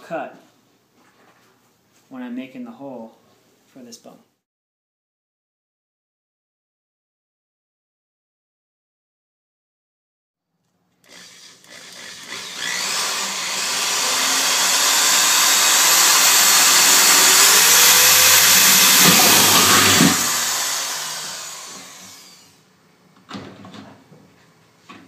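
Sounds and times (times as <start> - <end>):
electric drill boring metal: 11.0 - 22.6.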